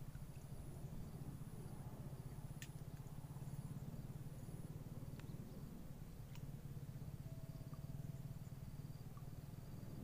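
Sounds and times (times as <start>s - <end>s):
low fluttering rumble: 0.0s - 10.0s
faint ticks: 2.3s - 3.6s, 5.1s - 5.4s, 6.2s - 6.7s, 7.5s - 9.5s
faint high-pitched tones: 6.8s - 10.0s.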